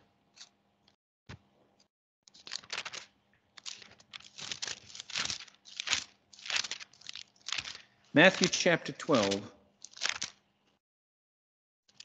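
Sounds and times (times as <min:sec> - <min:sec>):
paper rustling and crinkling: 0:02.3 - 0:10.4.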